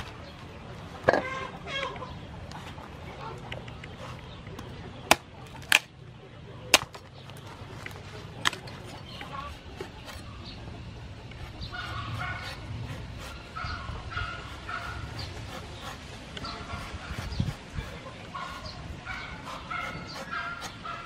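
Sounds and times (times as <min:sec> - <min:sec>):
knife shaving husk: 0:11.4 - 0:21.0.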